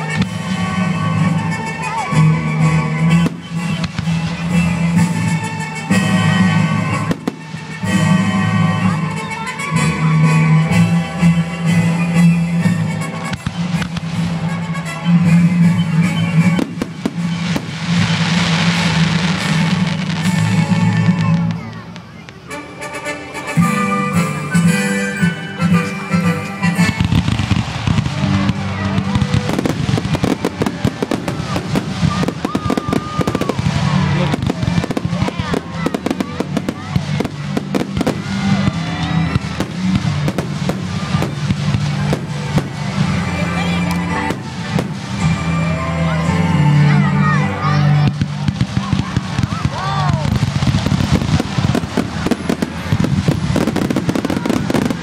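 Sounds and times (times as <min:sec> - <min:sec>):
music playing: 0:00.0 - 0:55.0
firework bangs: 0:03.1 - 0:08.7, 0:12.9 - 0:22.6, 0:26.7 - 0:45.4, 0:48.1 - 0:55.0
crackling hiss of firework stars: 0:16.4 - 0:22.6, 0:48.1 - 0:55.0.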